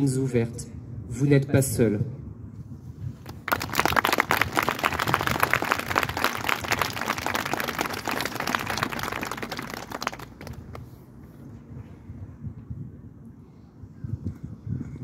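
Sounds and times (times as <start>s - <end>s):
crowd applauding: 3.3s - 10.8s.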